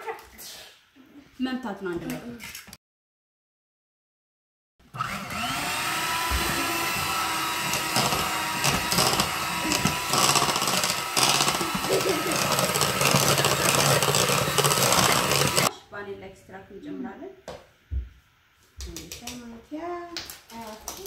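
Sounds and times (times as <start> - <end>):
electric hand mixer whining: 4.9 - 15.7.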